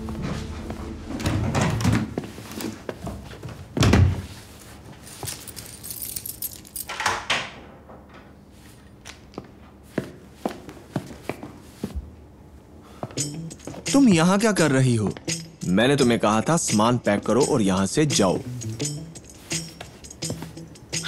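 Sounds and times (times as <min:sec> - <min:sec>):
rustling and light clinks: 0:04.3 - 0:07.1.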